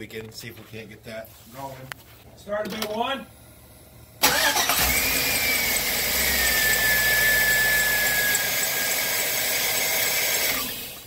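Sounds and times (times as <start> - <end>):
car engine running: 3.6 - 11.0
high-pitched belt squeal: 6.3 - 9.9.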